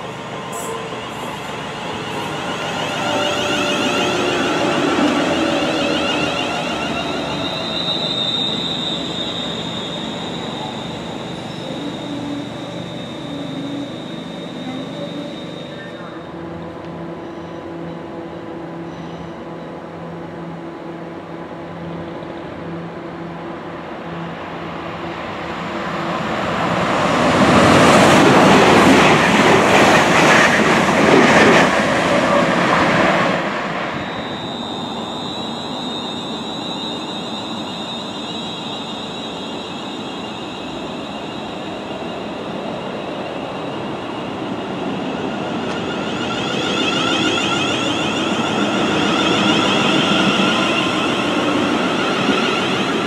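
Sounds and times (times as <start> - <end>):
electric train whine: 0.0 - 53.0.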